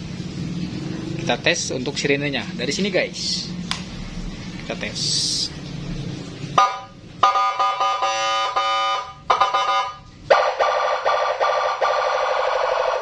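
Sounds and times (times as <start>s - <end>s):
electronic siren warbling: 6.6s - 13.0s.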